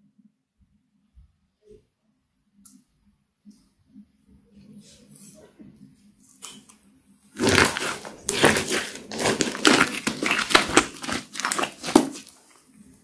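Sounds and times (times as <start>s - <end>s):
slime squelching and popping: 7.4s - 12.6s.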